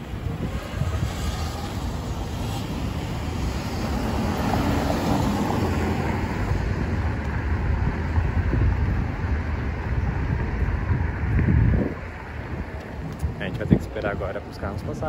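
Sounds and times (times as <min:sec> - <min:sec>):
cars driving past: 0:00.0 - 0:14.6.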